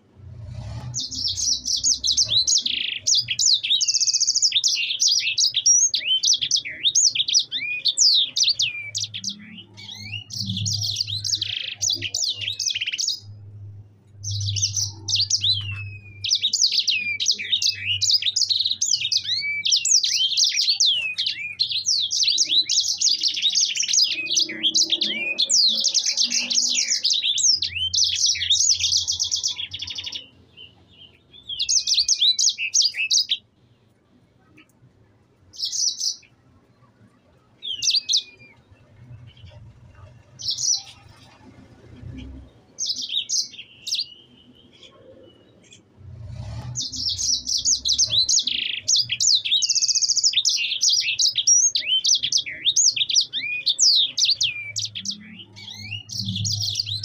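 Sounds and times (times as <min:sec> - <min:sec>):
finch singing rapid chirps and trills: 0:00.9 - 0:13.5, 0:14.1 - 0:33.5, 0:35.5 - 0:36.4, 0:37.5 - 0:57.0.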